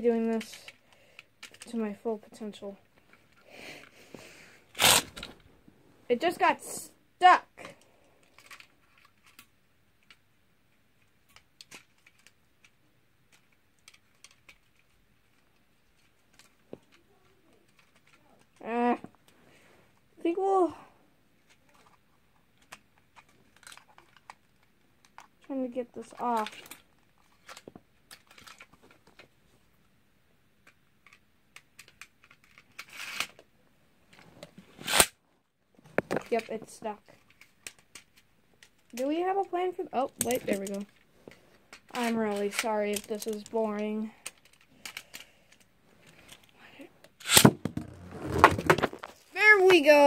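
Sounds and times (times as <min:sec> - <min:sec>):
small plastic clicks: 0:11.0 - 0:18.6, 0:30.6 - 0:33.4.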